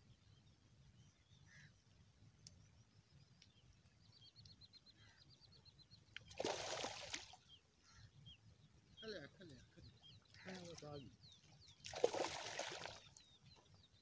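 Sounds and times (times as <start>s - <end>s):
water splash from hands: 6.3s - 7.4s, 11.8s - 13.2s.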